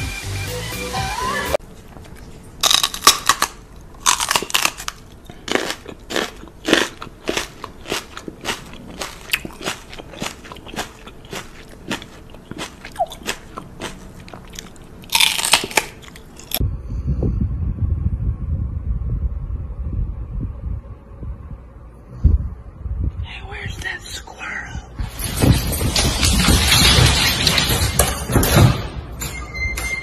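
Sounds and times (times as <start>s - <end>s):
low rumble: 16.6s - 29.2s.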